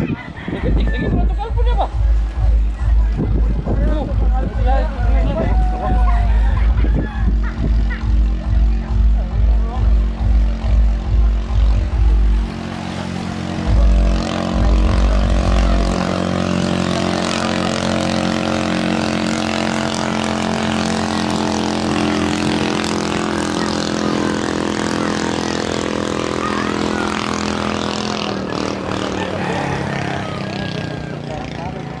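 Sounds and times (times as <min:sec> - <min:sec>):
wind buffeting microphone: 0:00.0 - 0:08.2
boat engine droning: 0:00.0 - 0:32.0.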